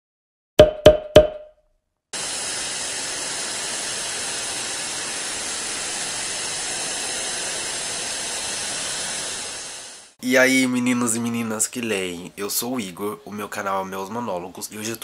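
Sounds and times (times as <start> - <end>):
television static hiss: 9.4 - 15.0.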